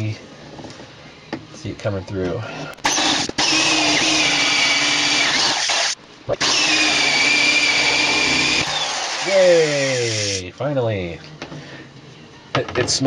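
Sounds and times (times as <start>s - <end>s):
electric drill whining: 2.8s - 10.4s
hole saw grinding through wood: 2.9s - 10.4s.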